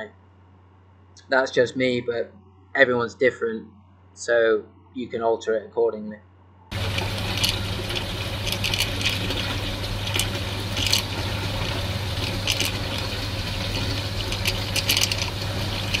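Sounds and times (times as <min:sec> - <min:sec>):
low pump hum: 0:06.7 - 0:16.0
watery slurping sounds: 0:06.7 - 0:16.0.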